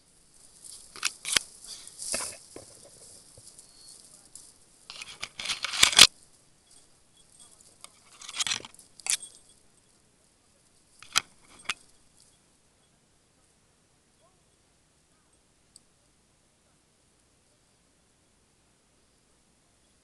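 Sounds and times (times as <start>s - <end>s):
twigs crackling and snapping: 0.3s - 9.5s.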